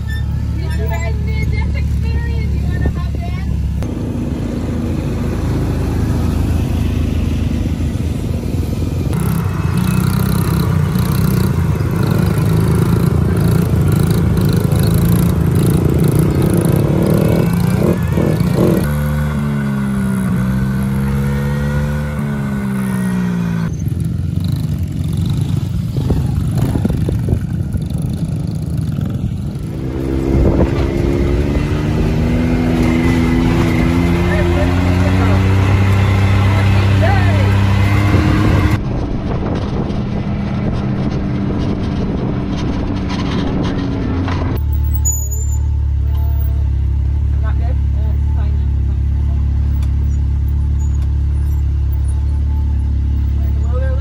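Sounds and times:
small off-road engines running: 0.0s - 54.0s
engine revving and shifting: 9.0s - 23.7s, 28.0s - 46.6s.

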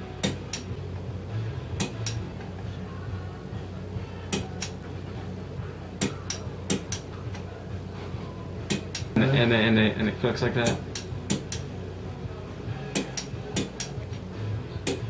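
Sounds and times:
low steady hum: 0.0s - 15.0s
torque wrench clicking: 1.8s - 2.2s, 6.0s - 7.4s.

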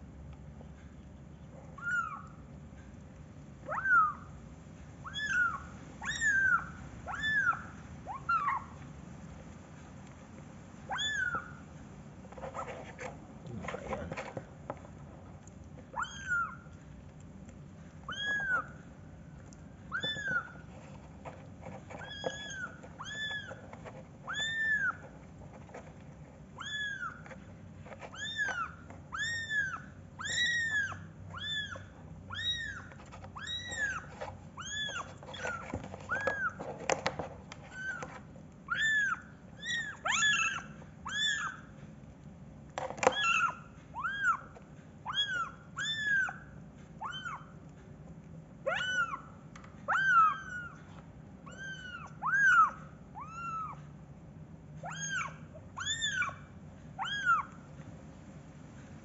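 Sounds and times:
kittens meowing: 1.8s - 2.4s, 3.7s - 4.3s, 5.0s - 8.8s, 10.9s - 11.6s, 15.9s - 16.7s, 18.1s - 18.8s, 19.9s - 20.6s, 28.1s - 36.6s, 38.7s - 41.7s, 48.7s - 49.3s, 49.9s - 53.8s, 54.8s - 56.4s, 57.0s - 57.6s.

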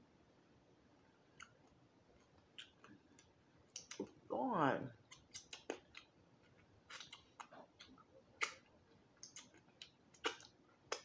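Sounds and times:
wet lip smacks: 5.1s - 6.1s, 6.9s - 11.0s
person licking fingers: 6.9s - 11.0s.

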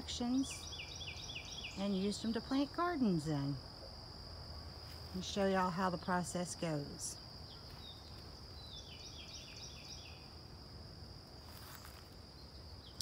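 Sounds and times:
insect trilling: 0.0s - 4.1s.

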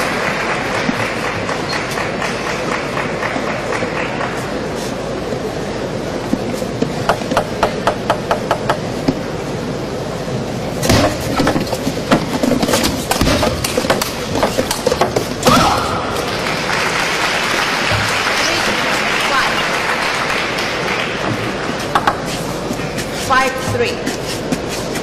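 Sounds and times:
crowd applause: 0.0s - 4.8s, 15.8s - 22.0s.

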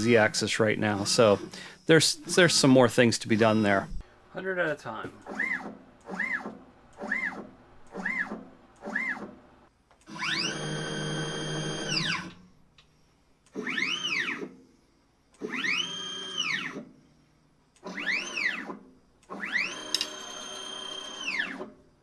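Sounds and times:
stepper motors whining: 0.6s - 4.0s.

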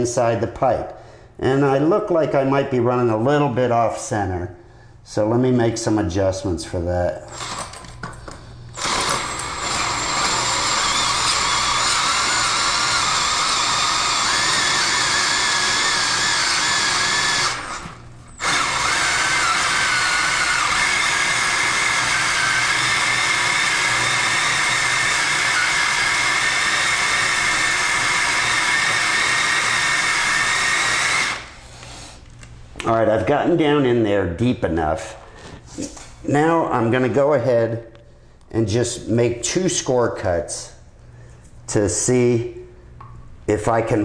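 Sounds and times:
drill with hole saw cutting plastic: 7.3s - 7.8s, 8.8s - 31.5s.

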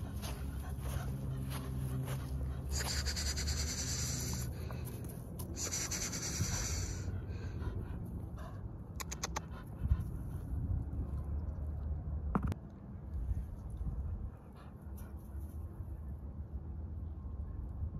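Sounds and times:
puppy panting rapidly: 0.0s - 4.7s, 5.6s - 10.5s.

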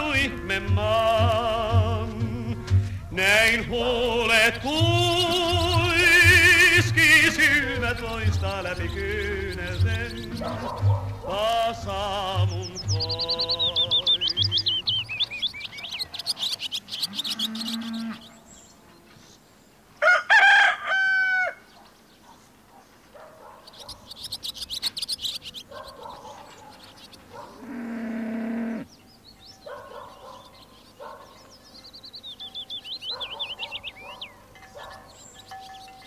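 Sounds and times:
chicken clucking calls: 0.0s - 18.2s
songbirds trilling: 0.0s - 36.0s
rooster crowing: 20.0s - 21.7s.

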